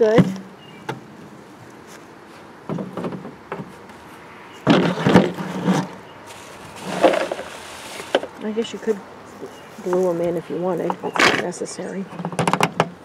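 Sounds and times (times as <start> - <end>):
plastic bucket scrapes and knocks: 4.6 - 8.3.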